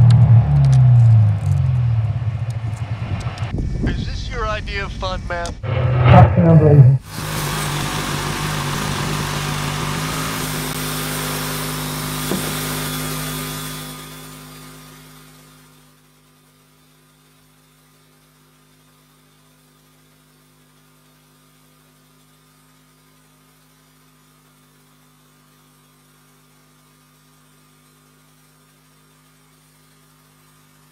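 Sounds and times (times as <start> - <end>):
faint low hum: 0.0 - 7.0.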